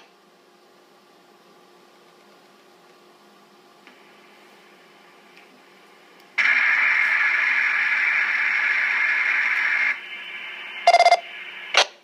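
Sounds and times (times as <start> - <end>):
quiet hum: 0.0 - 12.0
short sharp burst: 6.4 - 10.2.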